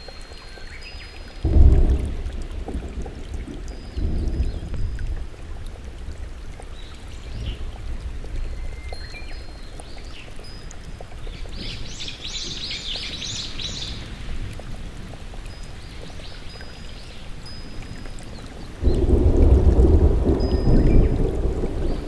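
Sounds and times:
heavy rain falling: 1.2s - 22.0s.

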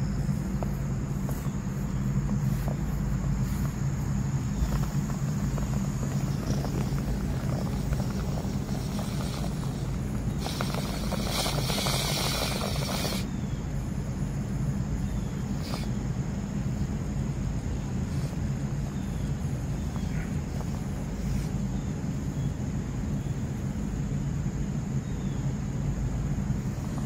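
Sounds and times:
burst of hiss: 0.0s - 13.4s, 15.4s - 16.0s, 18.0s - 18.6s
low mechanical hum: 0.0s - 27.0s
outdoor rumble: 0.0s - 27.0s.

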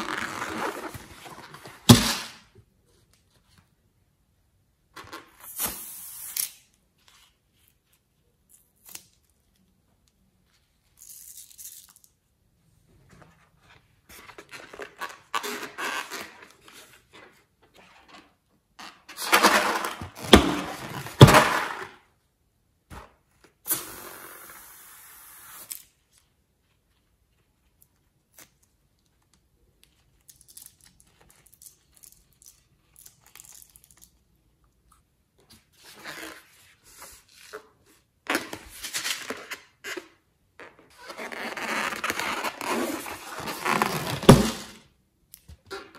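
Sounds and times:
slime and balloons rustling: 0.0s - 2.5s, 13.1s - 22.1s, 35.6s - 45.0s.

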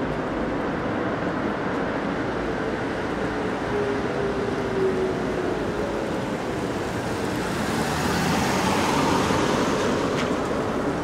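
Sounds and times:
tyres hissing on wet road: 4.5s - 11.0s.

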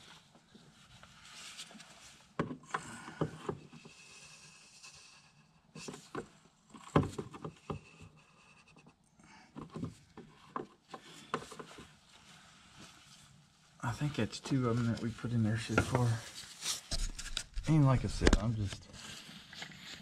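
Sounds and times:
clicks and knocks of hand work: 9.5s - 11.9s.

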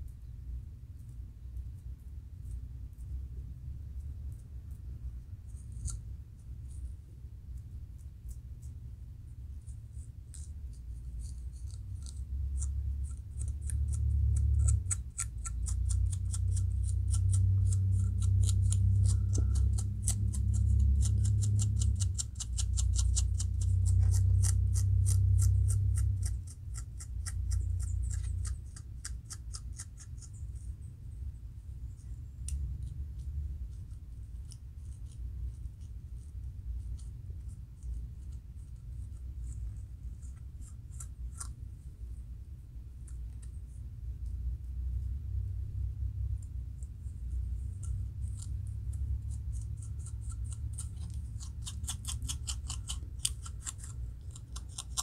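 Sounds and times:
metal comb scraping scalp: 5.5s - 6.2s, 9.9s - 30.4s, 47.7s - 55.0s
low rumble: 30.7s - 51.5s.

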